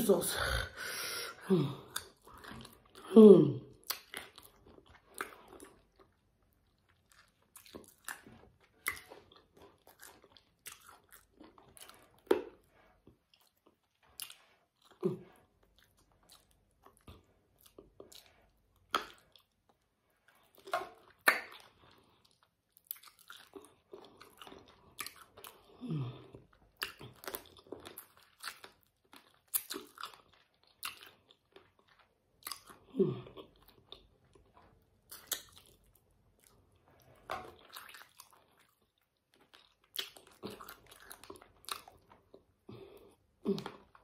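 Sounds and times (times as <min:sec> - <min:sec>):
crunchy chewing: 0:03.8 - 0:44.0
wet mouth smacks: 0:20.7 - 0:21.7.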